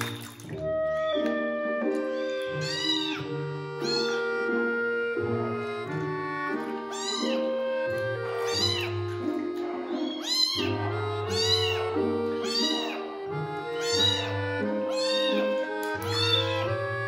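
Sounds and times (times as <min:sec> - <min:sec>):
background music: 0:00.0 - 0:17.0
kitten meowing: 0:00.9 - 0:01.5, 0:02.2 - 0:04.6, 0:06.9 - 0:13.1, 0:13.7 - 0:16.9.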